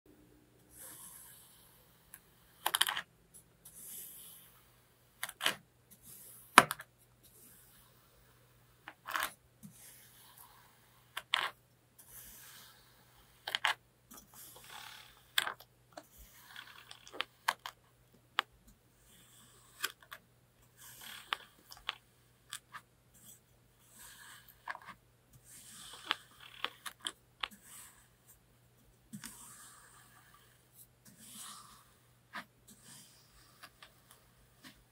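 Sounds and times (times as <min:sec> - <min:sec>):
fork scraping through sand: 0:31.1 - 0:31.8.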